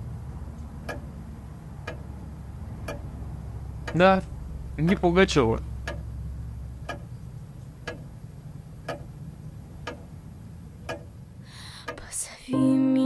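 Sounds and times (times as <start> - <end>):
low steady hum: 0.0 - 13.0
clock ticking: 0.8 - 1.1, 1.8 - 6.1, 6.8 - 7.2, 7.8 - 8.2, 8.8 - 10.2, 10.8 - 12.1.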